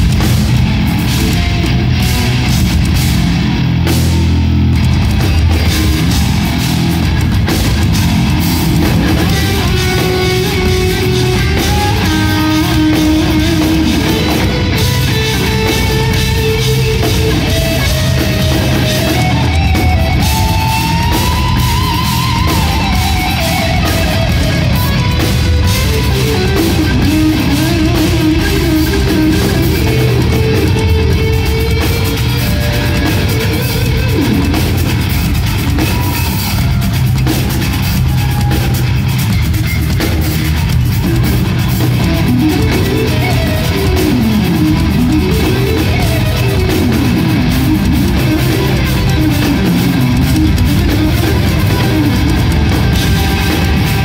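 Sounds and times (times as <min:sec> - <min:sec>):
drum kit: 0:00.0 - 0:54.0
electric guitars: 0:00.0 - 0:54.0.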